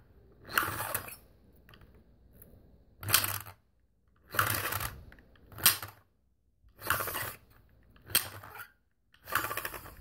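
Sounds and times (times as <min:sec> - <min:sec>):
plastic spinner whirring: 0:00.3 - 0:01.2, 0:03.0 - 0:06.1, 0:06.7 - 0:10.0.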